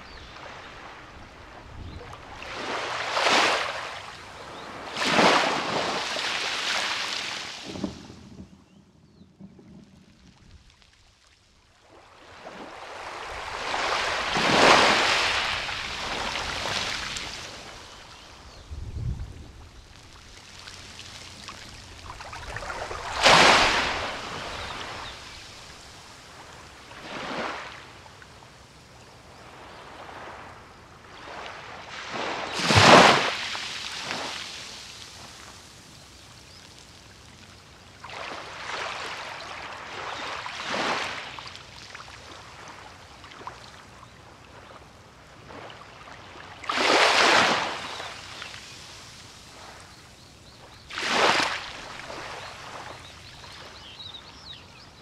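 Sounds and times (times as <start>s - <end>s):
small sea waves breaking: 0.0s - 8.2s, 10.7s - 18.5s, 19.9s - 28.2s, 29.4s - 35.7s, 37.2s - 43.9s, 44.5s - 50.0s, 50.6s - 54.0s.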